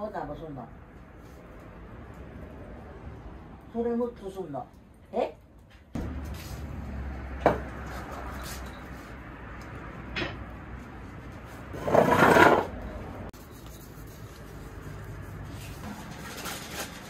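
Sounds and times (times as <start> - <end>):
scraping rustle: 11.3 - 12.7, 13.4 - 17.0.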